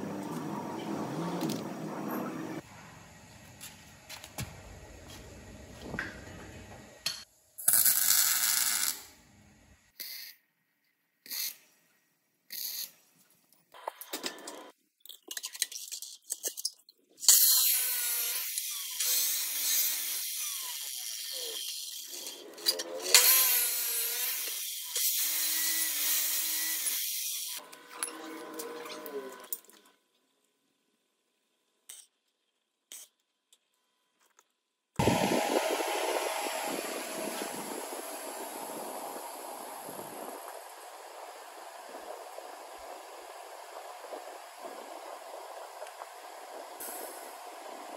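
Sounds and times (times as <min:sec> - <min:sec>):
saw motor spinning down: 0:35.0 - 0:44.4.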